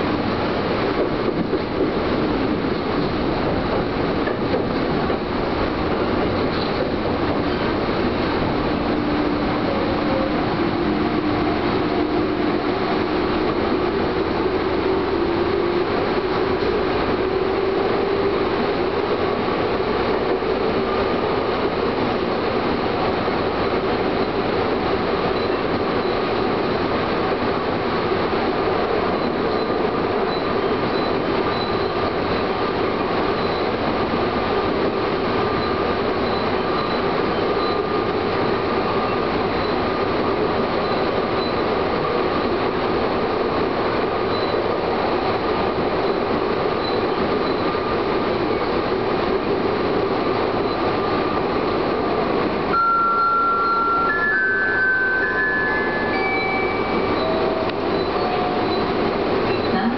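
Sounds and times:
electric train running on rails: 0:00.0 - 0:59.9
faint high whine: 0:52.7 - 0:59.9.

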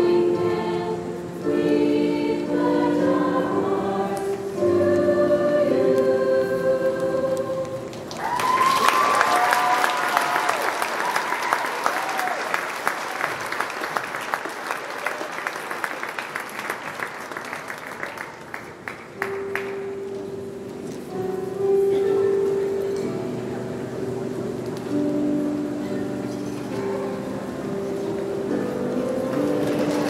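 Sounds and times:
crowd applauding: 0:07.9 - 0:19.8
crowd cheering: 0:08.1 - 0:18.4.

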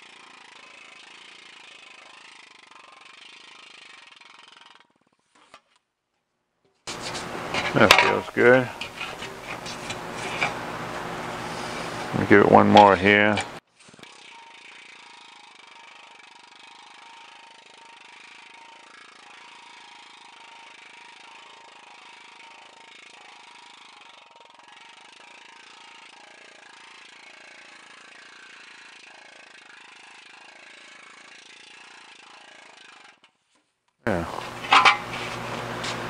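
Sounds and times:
planishing hammer on sheet metal: 0:06.9 - 0:13.6, 0:34.5 - 0:36.0.

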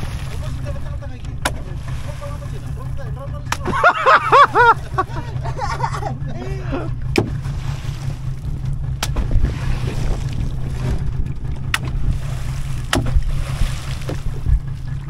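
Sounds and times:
sharp water slaps: 0:00.0 - 0:02.8, 0:03.4 - 0:05.1, 0:07.0 - 0:15.0
wind buffeting microphone: 0:04.8 - 0:15.0.

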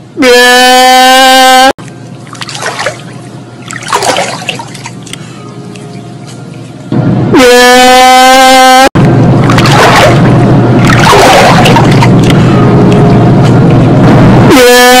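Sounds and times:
quiet water splashing: 0:02.1 - 0:06.1, 0:09.4 - 0:12.3
man crying wail distorted: 0:07.4 - 0:08.9.

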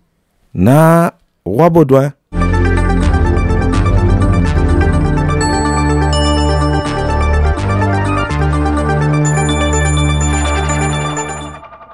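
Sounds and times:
news jingle music: 0:02.4 - 0:11.9
bell-like high tones: 0:05.4 - 0:08.3, 0:09.0 - 0:11.9.

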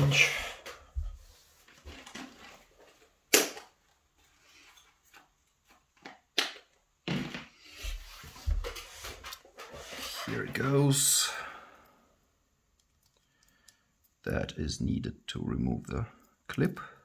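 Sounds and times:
tools clattering and rustling: 0:01.7 - 0:03.1.

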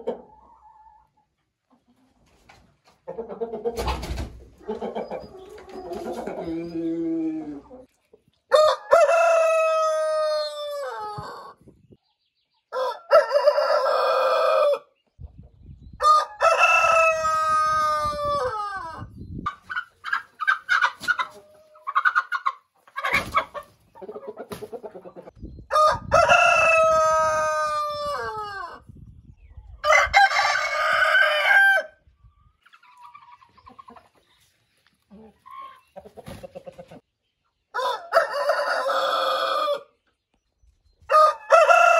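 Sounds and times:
chicken clucks and calls: 0:00.0 - 0:41.9
roosters crowing: 0:08.5 - 0:11.6, 0:12.7 - 0:14.9, 0:16.0 - 0:19.1, 0:25.7 - 0:28.8, 0:29.8 - 0:32.0, 0:37.7 - 0:40.0, 0:41.1 - 0:41.9.

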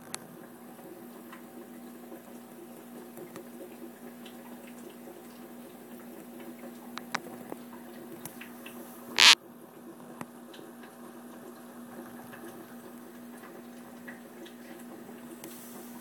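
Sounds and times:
aquarium equipment hum: 0:00.0 - 0:09.8.

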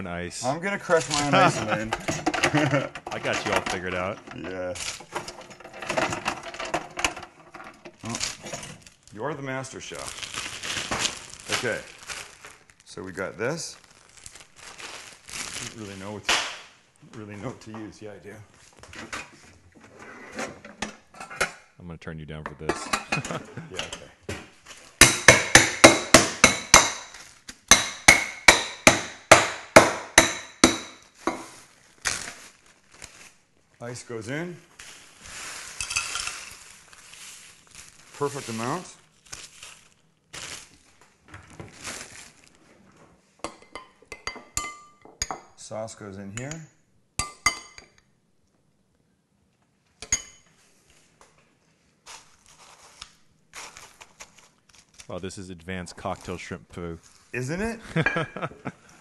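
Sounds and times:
metal spoon clinking dishes: 0:43.5 - 0:45.5, 0:47.2 - 0:48.0.

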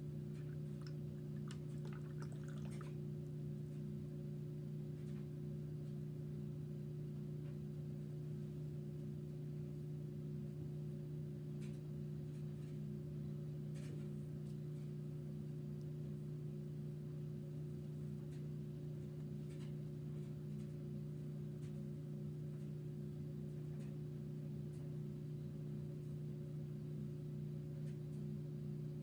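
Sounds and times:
steady low hum: 0:00.0 - 0:29.0
faint light ticks: 0:11.6 - 0:12.8, 0:18.3 - 0:20.8.

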